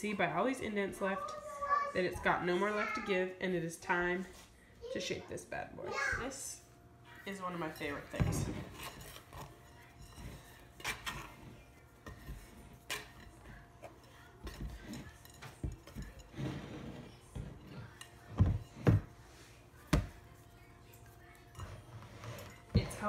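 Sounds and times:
scraper scraping ceramic bowl: 7.8s - 13.2s, 15.9s - 17.9s, 21.6s - 23.0s.

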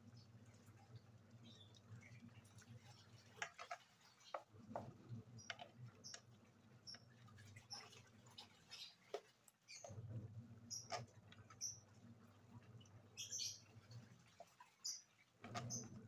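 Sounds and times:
spoon stirring in metal bowl: 2.2s - 8.0s.

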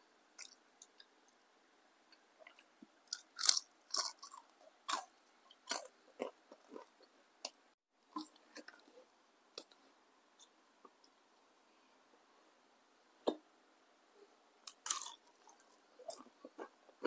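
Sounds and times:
crunching and chewing fried food: 0.4s - 1.2s, 2.1s - 9.8s, 14.6s - 17.0s.

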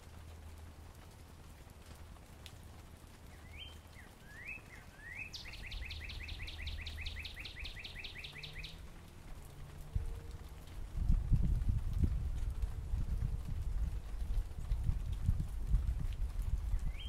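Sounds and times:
bird singing whistles: 3.3s - 8.8s, 16.8s - 17.0s.

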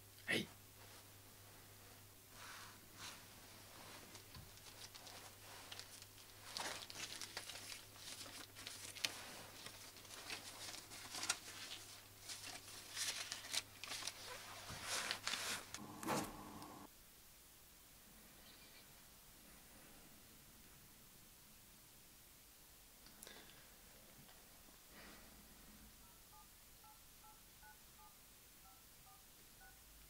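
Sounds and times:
banknotes rustling as counted: 3.6s - 16.9s.

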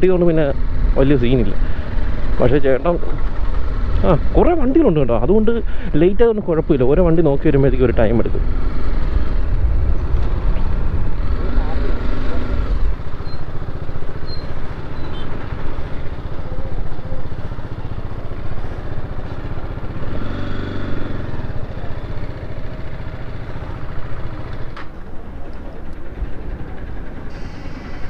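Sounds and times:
street traffic: 0.0s - 28.0s
motorcycle engine idling: 12.6s - 20.1s, 21.0s - 28.0s.

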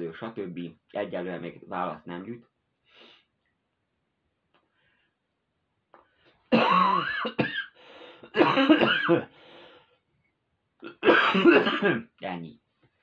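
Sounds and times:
man coughing and clearing throat: 6.5s - 9.3s, 10.8s - 12.2s.

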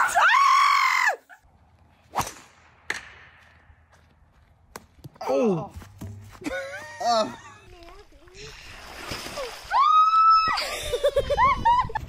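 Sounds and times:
whip strikes: 2.2s - 3.3s.

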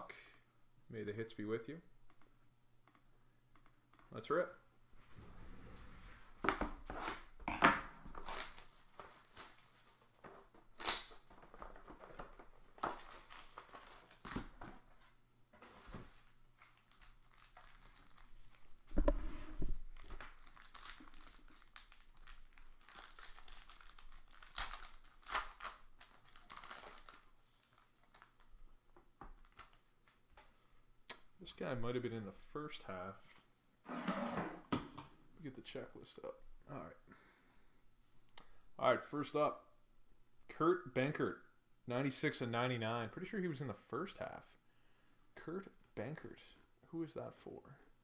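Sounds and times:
foil pack crinkling and ripping: 8.2s - 10.1s, 12.8s - 14.4s, 16.6s - 18.8s, 19.9s - 28.5s
plastic shrink wrap tearing: 12.8s - 14.3s, 16.6s - 18.8s, 19.9s - 28.5s.

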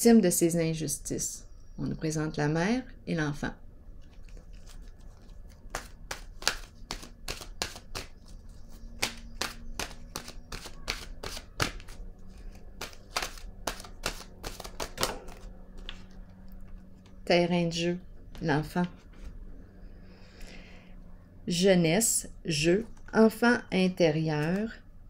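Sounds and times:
cards being shuffled: 4.0s - 17.2s.

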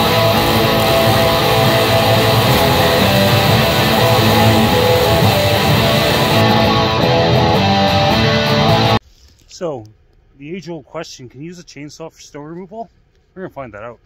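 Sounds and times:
music with strummed guitar: 0.0s - 9.0s.

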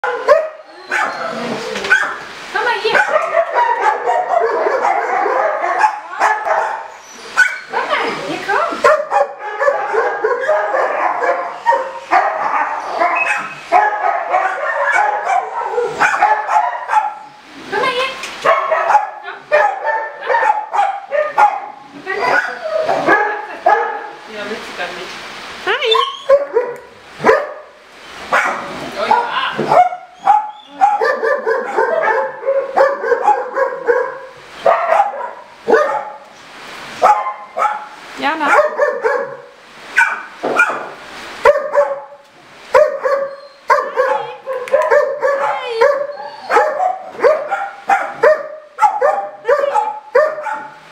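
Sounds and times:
dogs barking yipping and whining: 0.0s - 24.2s, 25.8s - 50.9s.

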